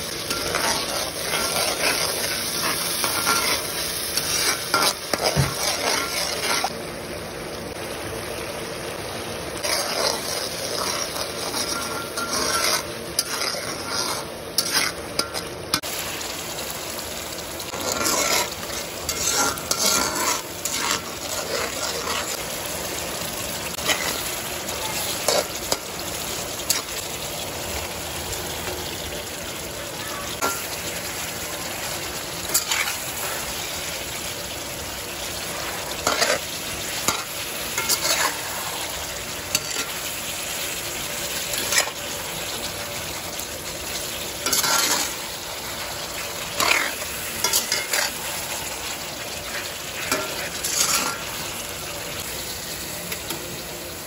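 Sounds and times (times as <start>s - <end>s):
spatula scraping a wok: 0.0s - 6.7s, 9.6s - 16.0s, 17.6s - 22.6s, 23.2s - 24.4s, 25.0s - 27.2s, 30.3s - 43.2s, 43.8s - 51.8s
sauce sizzling and bubbling: 0.0s - 54.0s.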